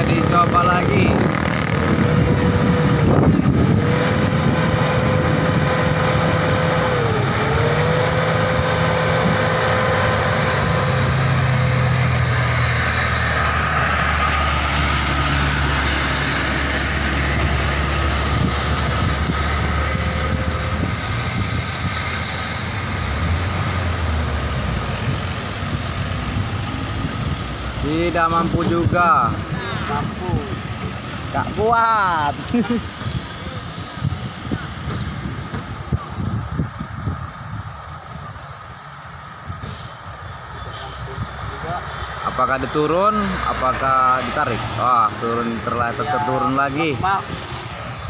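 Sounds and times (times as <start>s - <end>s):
cars passing: 0.0s - 48.0s
truck engine straining uphill: 0.0s - 48.0s.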